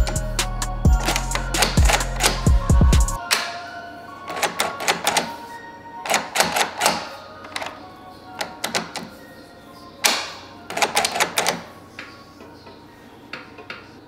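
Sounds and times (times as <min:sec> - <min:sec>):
background music: 0:00.0 - 0:14.0
door latch clicking metallically: 0:01.0 - 0:02.5, 0:06.0 - 0:07.8, 0:08.4 - 0:09.1, 0:10.0 - 0:11.7.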